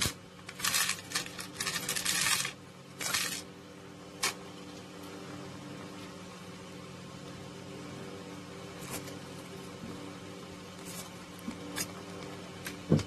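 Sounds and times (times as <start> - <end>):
small metal parts clinking: 0.0 - 3.4.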